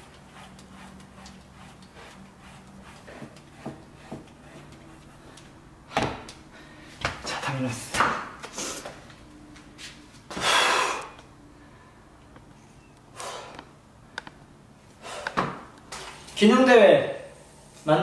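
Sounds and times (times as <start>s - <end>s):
soft breath: 6.5s - 7.0s, 10.3s - 13.7s.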